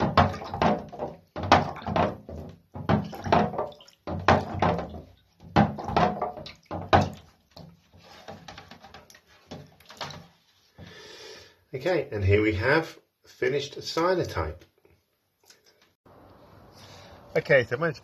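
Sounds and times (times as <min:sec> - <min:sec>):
water sloshing in a tray: 0:00.0 - 0:10.9.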